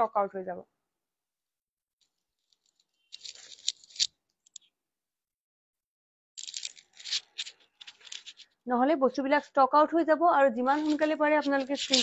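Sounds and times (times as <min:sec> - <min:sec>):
rustling handling noise: 0:02.0 - 0:04.1, 0:06.4 - 0:08.6, 0:10.7 - 0:12.0.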